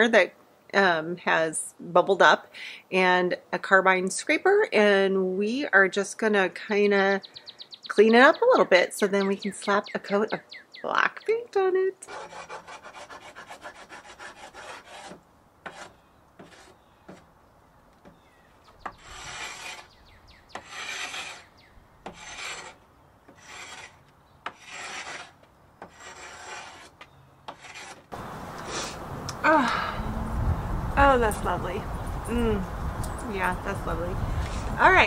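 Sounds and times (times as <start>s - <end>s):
hand scraper scraping wood veneer: 12.1s - 16.8s, 18.8s - 19.9s, 20.6s - 28.9s.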